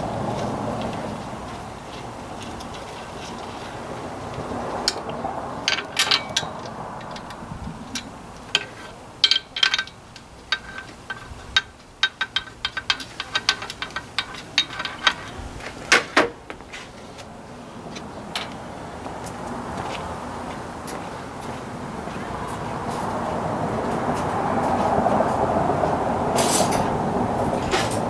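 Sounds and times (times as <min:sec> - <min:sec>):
loud metal clanks: 0:05.6 - 0:16.4
hand ratchet clicking: 0:05.7 - 0:15.4.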